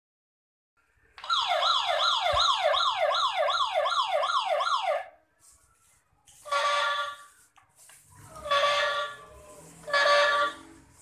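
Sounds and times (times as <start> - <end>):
electronic toy siren wailing: 1.2 - 5.2, 6.4 - 7.3, 8.4 - 10.7.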